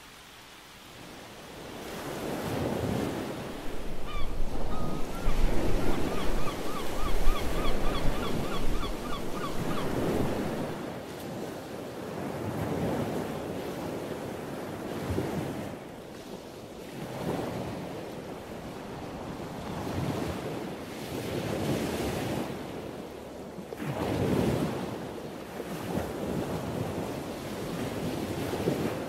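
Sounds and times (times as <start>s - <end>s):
sea surf breaking on beach: 0.0s - 29.0s
wind on microphone: 1.6s - 10.8s.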